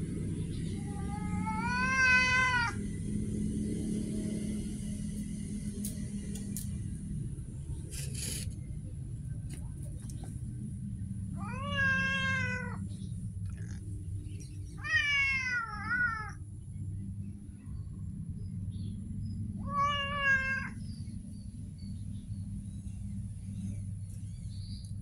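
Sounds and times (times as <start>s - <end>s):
steady low hum: 0.0s - 25.0s
cat meowing: 0.8s - 2.8s, 11.4s - 12.8s, 14.8s - 16.4s, 19.6s - 20.8s.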